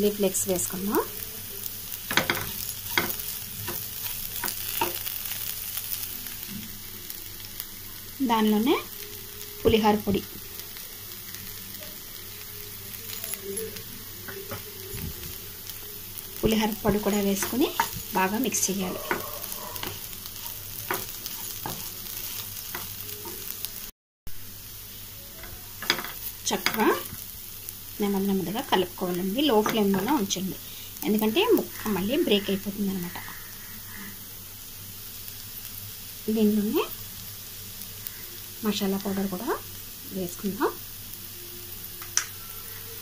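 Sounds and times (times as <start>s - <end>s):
vegetables sizzling in oil: 0.0s - 43.0s
spatula scraping a pan: 16.5s - 23.5s.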